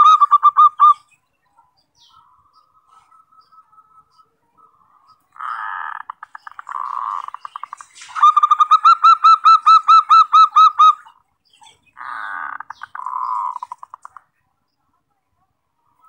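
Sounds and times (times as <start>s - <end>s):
dove cooing trill: 0.0s - 1.1s.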